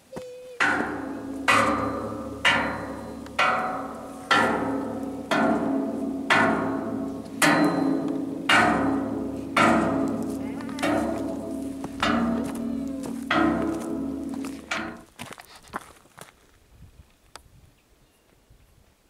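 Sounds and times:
metal poles struck ringing: 0.6s - 15.1s.

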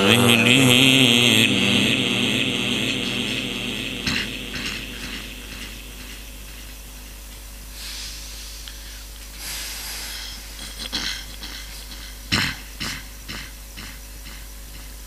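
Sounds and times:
microphone hum: 0.0s - 8.4s
breaths into microphone: 7.7s - 12.4s.

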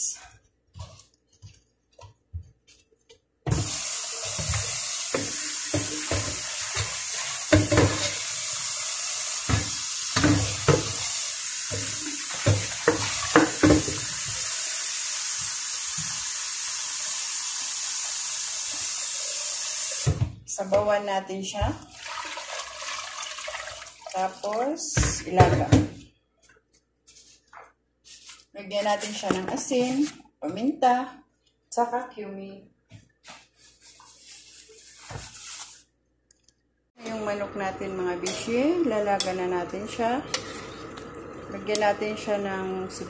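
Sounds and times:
kitchen tap running: 3.5s - 20.8s, 21.8s - 25.6s, 37.0s - 43.0s.

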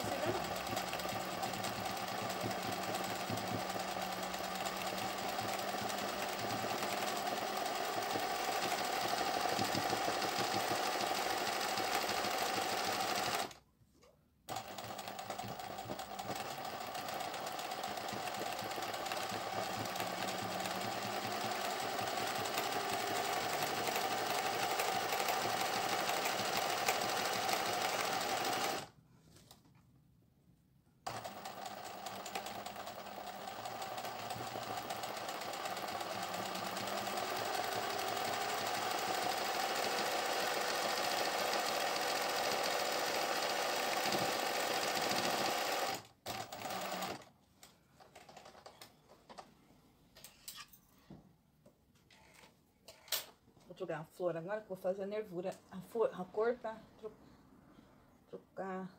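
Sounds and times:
sewing machine running: 0.0s - 13.6s, 14.5s - 28.9s, 31.1s - 47.3s.

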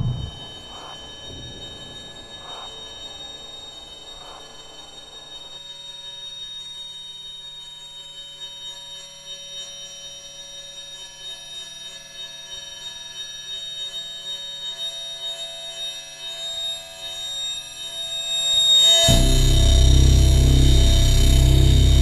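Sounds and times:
faint pulsing low tone: 0.0s - 2.0s, 19.1s - 22.0s
high-pitched ringing drone: 0.0s - 22.0s.

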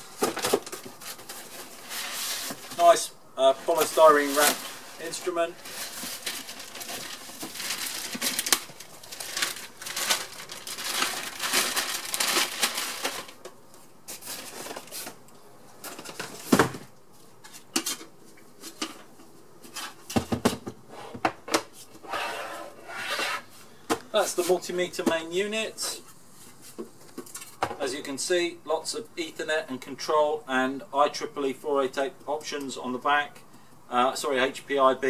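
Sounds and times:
packaging rustling and crinkling: 0.0s - 15.2s.

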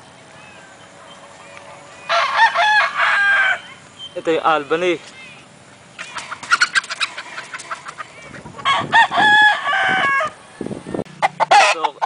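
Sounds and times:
chickens clucking: 0.0s - 5.0s, 5.8s - 12.0s
rooster crowing: 2.0s - 3.8s, 8.6s - 10.4s.

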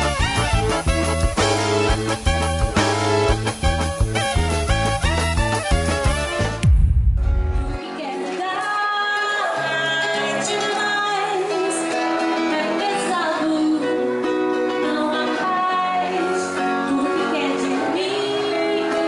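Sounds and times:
woman singing into microphone: 7.8s - 19.0s.

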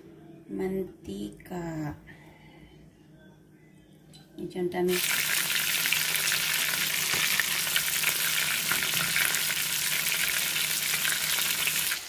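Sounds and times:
fish sizzling in hot oil: 4.9s - 12.0s.

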